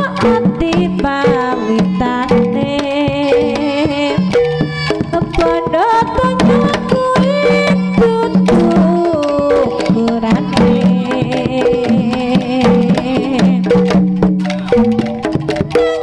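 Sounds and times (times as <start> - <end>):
gamelan music over loudspeakers: 0.0 - 16.0
hand drum strokes: 0.0 - 16.0.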